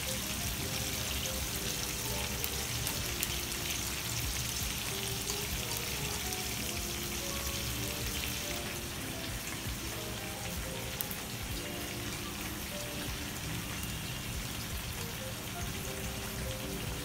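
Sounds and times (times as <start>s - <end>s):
soft background music: 0.0s - 17.0s
steady rain-like hiss: 0.0s - 17.0s.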